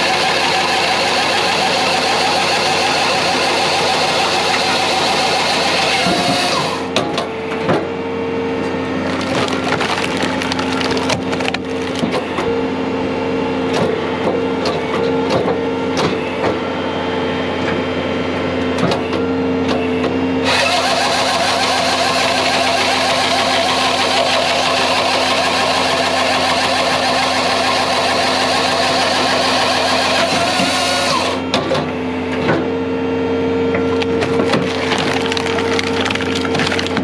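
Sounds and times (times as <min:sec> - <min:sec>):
chainsaw cutting log: 0:00.0 - 0:07.0, 0:20.4 - 0:31.5, 0:33.9 - 0:37.0
diesel engine and hydraulics humming: 0:00.0 - 0:37.0
wood cracking and splintering: 0:09.0 - 0:12.3, 0:33.8 - 0:37.0.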